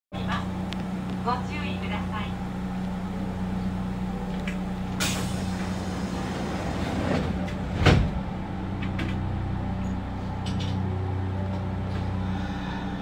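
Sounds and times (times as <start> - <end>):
train electrical hum: 0.2 - 13.0
train doors closing thump: 4.5 - 9.2.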